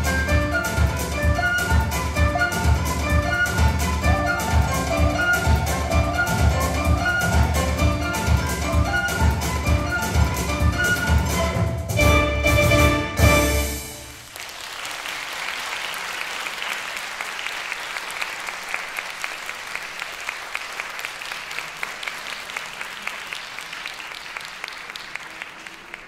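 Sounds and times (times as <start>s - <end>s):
audience applauding: 12.8s - 26.0s.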